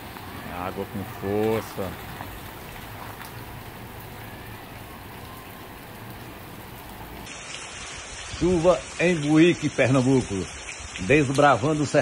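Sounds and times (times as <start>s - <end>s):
heavy rain splashing into water: 0.0s - 12.0s.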